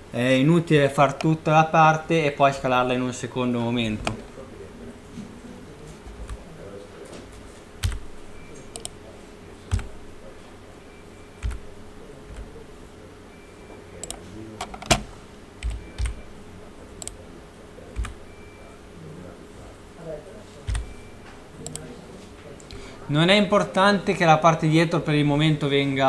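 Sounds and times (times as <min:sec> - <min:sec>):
faint steady hum: 0:00.0 - 0:26.0
keyboard and mouse clicks: 0:04.0 - 0:04.3, 0:07.8 - 0:08.1, 0:08.7 - 0:09.0, 0:09.7 - 0:09.9, 0:11.4 - 0:11.6, 0:14.0 - 0:16.2, 0:17.0 - 0:17.2, 0:18.0 - 0:18.2, 0:20.7 - 0:21.0, 0:21.6 - 0:21.9.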